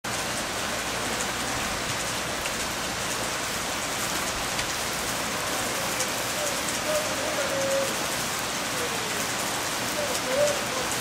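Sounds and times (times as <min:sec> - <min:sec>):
heavy rain on pavement and roof: 0:00.0 - 0:11.0.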